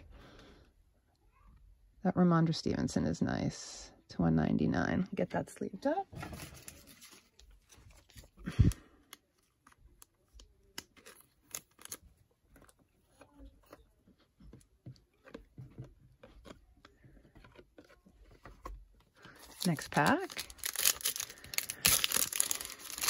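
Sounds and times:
light plastic scrapes and clicks: 12.5s - 19.6s.

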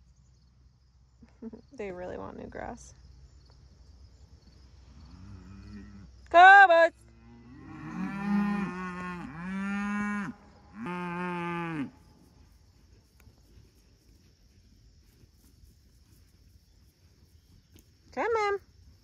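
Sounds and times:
cattle mooing: 7.2s - 11.9s.

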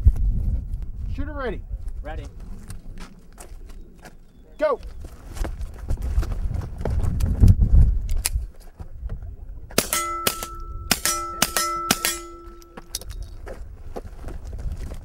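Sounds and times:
pistol shots cracking: 9.8s - 13.0s
steel targets ringing: 9.8s - 13.1s.

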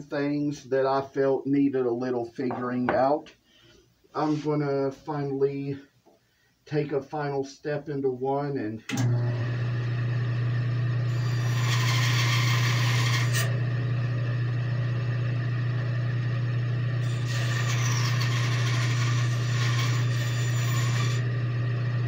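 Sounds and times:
bandsaw motor humming: 8.9s - 22.0s
bandsaw cutting wood: 11.1s - 13.5s, 17.0s - 21.3s.

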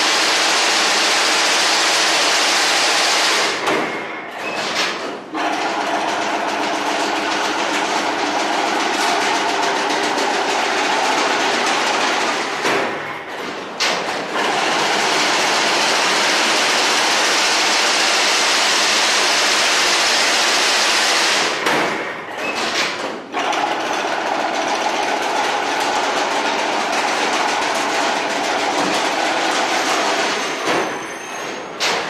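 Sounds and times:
fence machine mechanical clatter: 0.0s - 32.0s.

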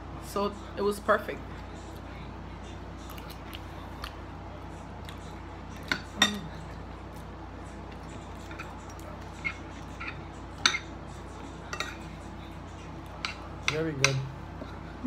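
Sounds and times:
steady low hum: 0.0s - 15.0s
forks clinking on plates: 5.8s - 6.5s, 8.4s - 10.9s, 11.6s - 12.2s.

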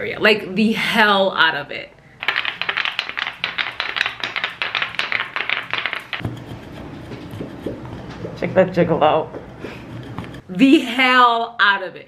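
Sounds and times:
wooden massage tools tapping skin: 2.2s - 10.5s
low rubbing: 3.0s - 10.5s.

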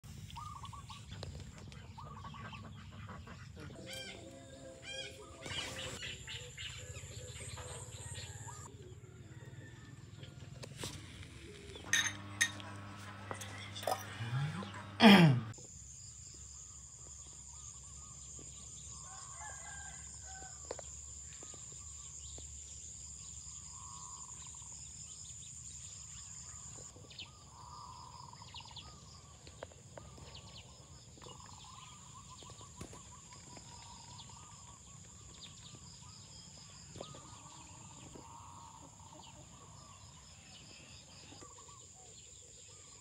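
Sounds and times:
rooster crowing: 19.0s - 20.8s.

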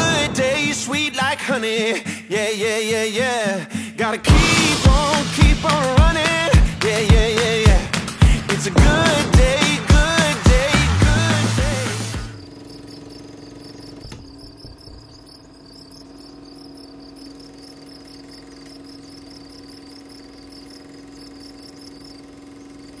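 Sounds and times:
steady low hum: 4.3s - 23.0s
crickets chirping: 12.2s - 23.0s.

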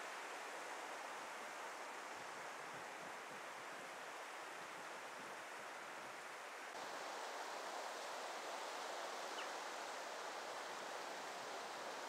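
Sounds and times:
small waves washing onto shore: 6.0s - 12.0s.

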